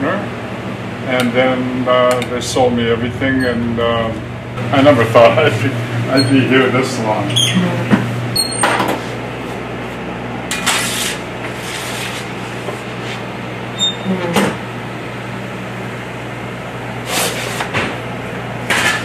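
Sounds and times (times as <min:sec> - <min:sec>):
low hum of kitchen equipment: 0:00.0 - 0:19.0
pizza peel scraping in oven: 0:10.5 - 0:13.2, 0:17.0 - 0:17.7.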